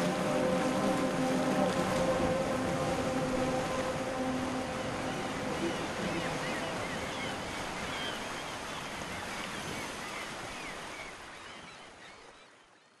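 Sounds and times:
gusty wind: 0.0s - 9.8s
churning harbour water: 0.0s - 12.4s.

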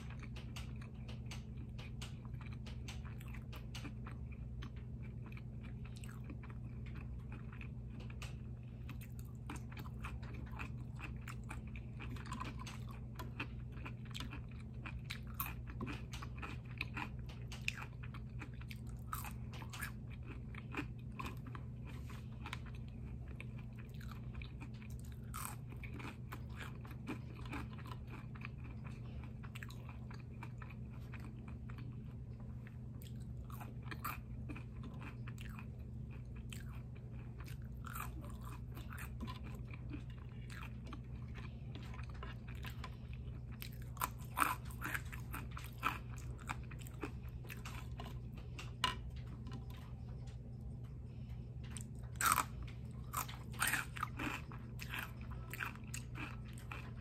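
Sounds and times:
chewing crispy fries: 0.0s - 57.0s
steady low hum: 0.0s - 57.0s.

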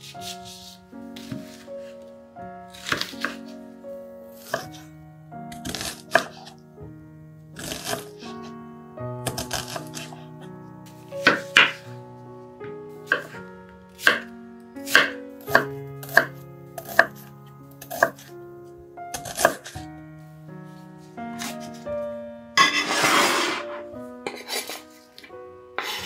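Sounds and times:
soft background music: 0.0s - 26.0s
knife chopping on wooden board: 13.1s - 13.4s, 14.9s - 17.2s, 19.2s - 19.8s.

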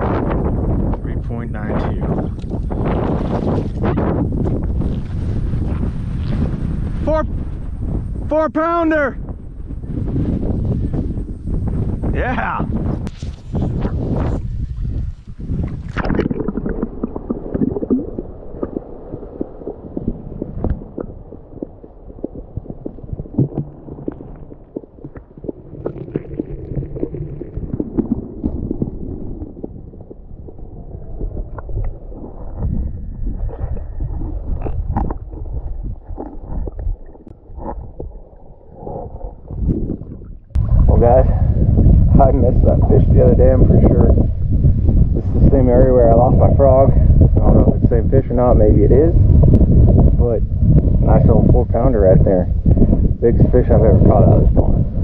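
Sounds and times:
underwater sloshing and gurgling: 12.7s - 55.0s
water splash: 15.3s - 30.4s.

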